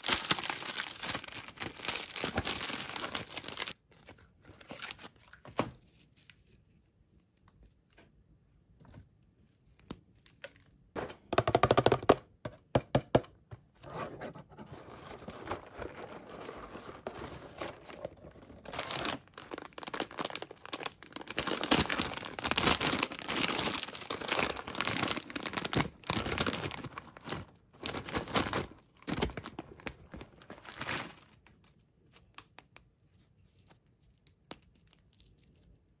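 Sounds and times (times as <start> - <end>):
plastic snack pouch crinkling: 0.0 - 3.8, 17.7 - 31.6.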